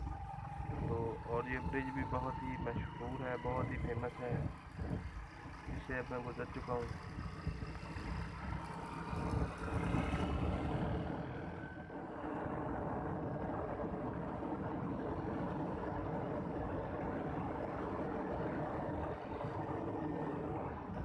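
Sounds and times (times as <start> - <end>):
motorcycle engine and road noise: 0.0 - 21.0.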